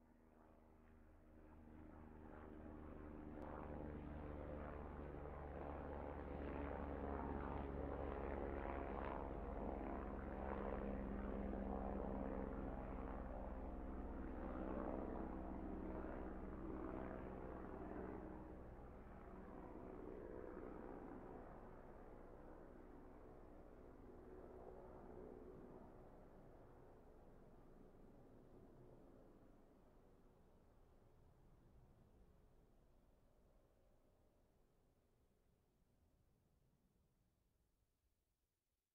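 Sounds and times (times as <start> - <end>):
helicopter rotor and engine: 0.1 - 29.4.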